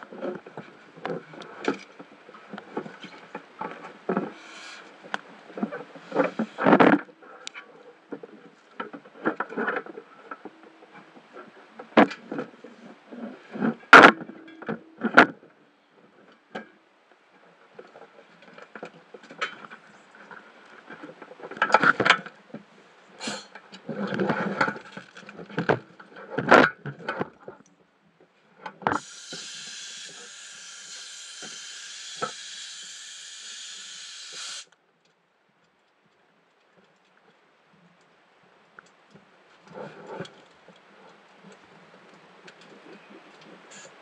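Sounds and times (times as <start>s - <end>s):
steady hiss: 3.7s - 5.2s, 23.2s - 23.6s, 28.9s - 34.8s, 43.7s - 44.0s.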